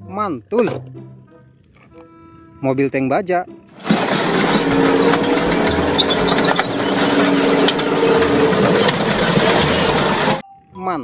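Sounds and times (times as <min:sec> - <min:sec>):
metal crunching: 0:03.8 - 0:10.4
tank engine droning: 0:03.8 - 0:10.4
tank tracks clanking: 0:03.8 - 0:10.4.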